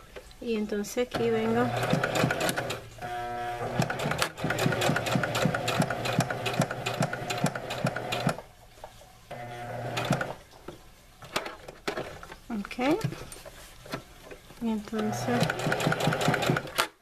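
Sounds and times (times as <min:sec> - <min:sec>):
sewing machine stitching: 0:01.2 - 0:08.4, 0:09.3 - 0:10.4, 0:15.0 - 0:17.0.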